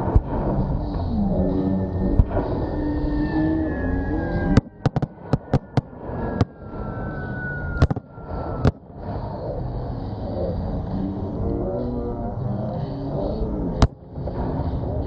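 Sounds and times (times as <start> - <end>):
high falling whine: 0.0 - 15.0
steady rumble: 0.0 - 15.0
firework bangs: 4.6 - 6.6, 7.8 - 8.8.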